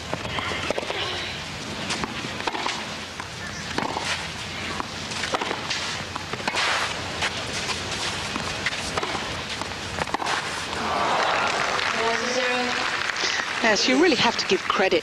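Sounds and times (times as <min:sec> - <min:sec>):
tennis rackets striking ball: 0:01.9 - 0:10.9
crowd murmur: 0:10.6 - 0:14.7.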